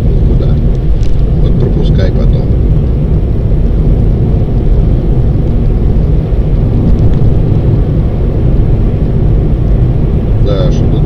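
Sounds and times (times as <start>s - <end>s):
car driving interior rumble: 0.0s - 11.0s.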